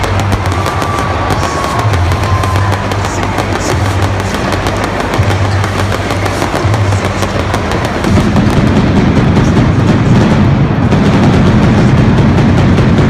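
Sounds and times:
loud music: 0.0s - 13.0s
pyrotechnic sparks crackling: 0.0s - 13.0s.

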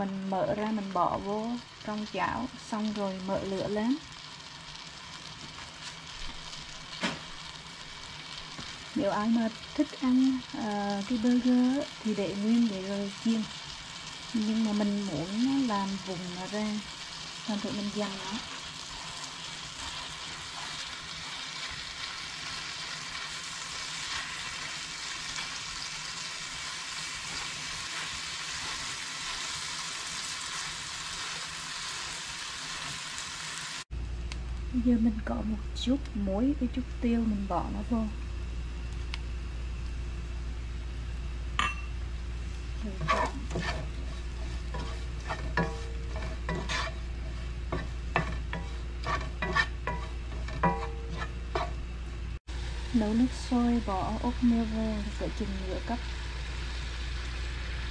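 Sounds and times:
ground meat sizzling in a pan: 0.0s - 33.9s, 35.8s - 57.9s
wooden spatula scraping a pan: 17.8s - 23.4s, 42.9s - 51.8s
steady low hum: 33.9s - 57.9s.

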